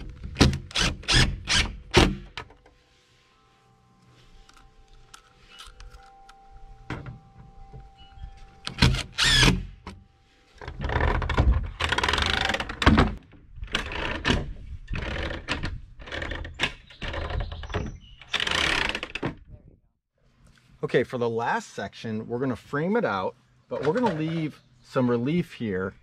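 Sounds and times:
cordless drill driving screws: 8.7s - 9.6s.

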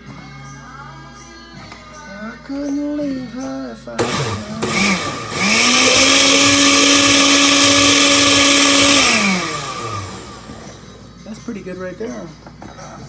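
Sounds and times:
countertop blender motor: 4.0s - 10.8s.

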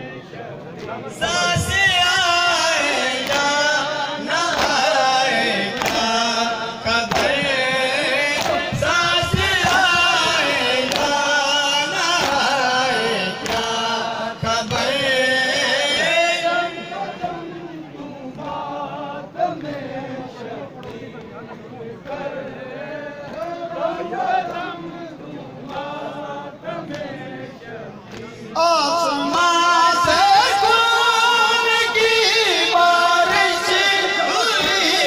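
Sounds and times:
men chanting in unison: 0.0s - 35.0s
hands slapping chests: 4.5s - 4.8s, 5.8s - 6.0s, 7.1s - 7.4s, 8.4s - 8.7s, 10.8s - 11.2s, 12.2s - 12.5s, 13.4s - 13.8s.

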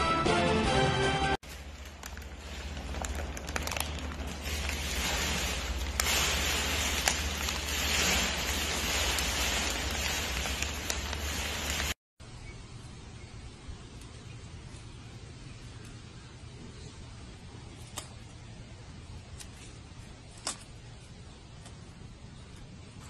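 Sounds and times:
plastic bag crinkling: 1.4s - 12.0s.

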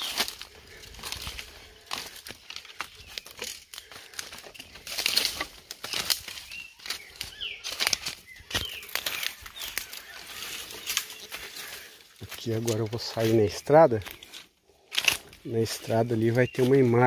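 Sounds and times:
bird calls: 0.0s - 17.0s
footsteps crunching dry leaves: 0.0s - 17.0s
stems brushing past: 0.0s - 17.0s.

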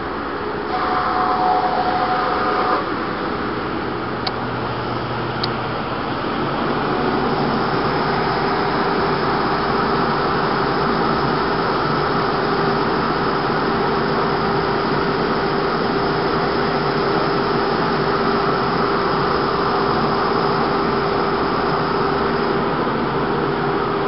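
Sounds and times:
belt sander running: 0.7s - 23.0s.

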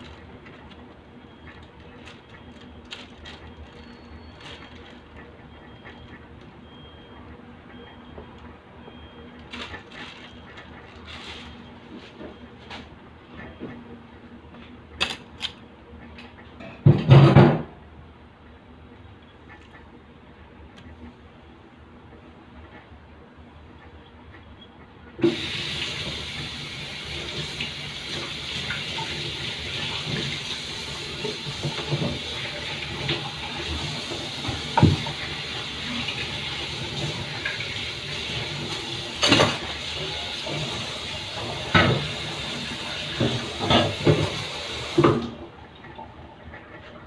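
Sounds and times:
kitchen tap running: 25.2s - 45.4s.

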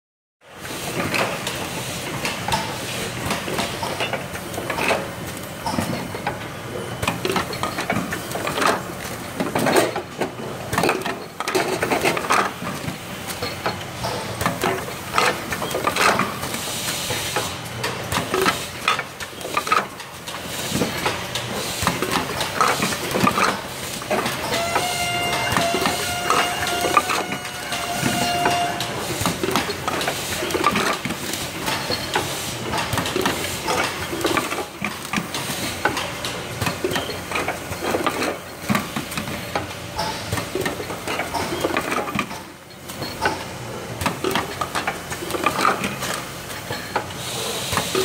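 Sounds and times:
steady mechanical noise: 0.5s - 48.0s
machine clicks and clacks: 0.8s - 48.0s.

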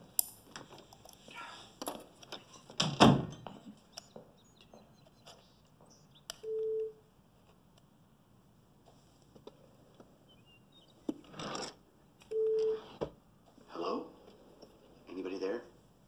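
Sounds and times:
door thudding shut: 2.8s - 3.5s.

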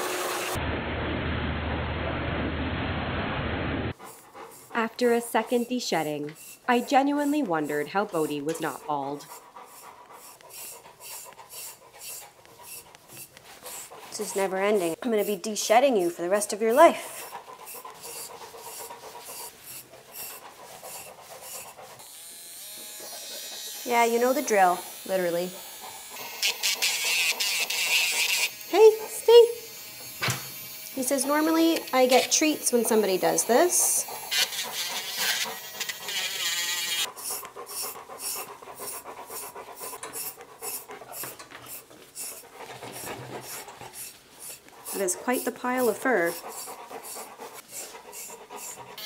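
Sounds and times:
electric nail grinder whirring: 0.0s - 0.6s, 16.7s - 49.0s
dog panting: 3.9s - 22.2s, 22.8s - 29.6s, 31.0s - 49.0s
brush rasping through fur: 3.9s - 29.6s, 30.9s - 49.0s
brush raking through fur: 41.8s - 49.0s.

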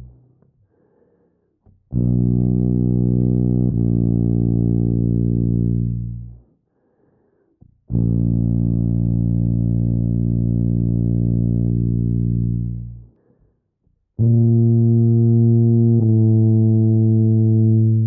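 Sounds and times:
tuba playing long low notes: 1.9s - 6.4s, 7.9s - 13.1s, 14.2s - 18.0s.

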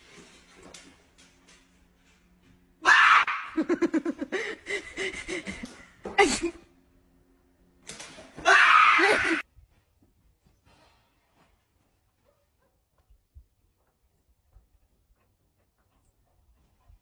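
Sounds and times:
person laughing hard: 3.2s - 6.6s.

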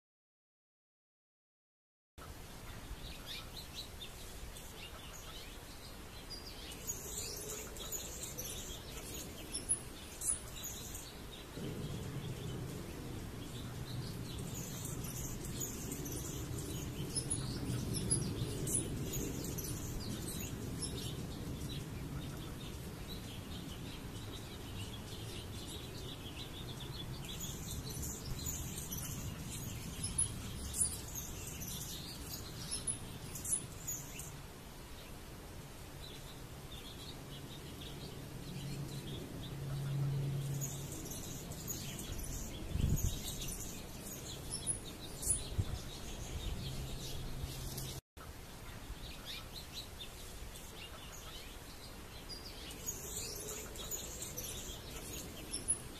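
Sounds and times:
birds chirping: 2.2s - 55.9s
low rumble: 11.5s - 25.0s.

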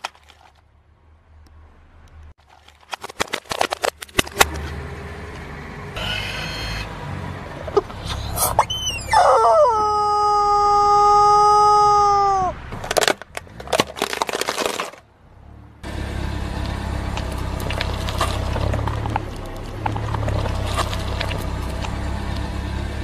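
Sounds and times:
crackling and crunching: 0.0s - 0.7s, 2.4s - 4.8s, 12.7s - 15.1s, 16.6s - 22.6s
tyre crackling on wet pavement: 0.0s - 0.7s, 12.4s - 23.0s
rubber chicken toy squeal: 6.0s - 6.9s, 8.0s - 12.6s
car rolling slowly: 12.5s - 23.0s.

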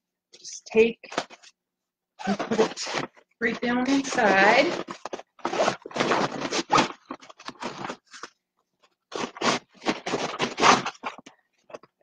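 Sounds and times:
fabric rustling and scraping: 2.2s - 8.3s, 9.1s - 11.8s.

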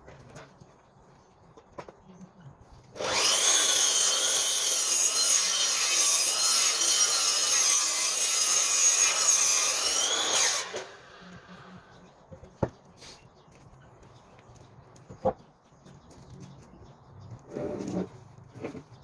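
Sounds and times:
mitre saw cutting wood: 2.9s - 11.9s.

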